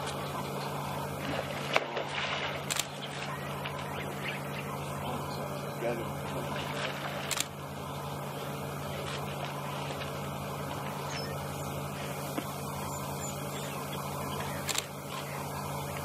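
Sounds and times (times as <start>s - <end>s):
faint outdoor noise: 0.0s - 16.0s
steady low hum: 0.0s - 16.0s
brief splash: 1.2s - 3.2s.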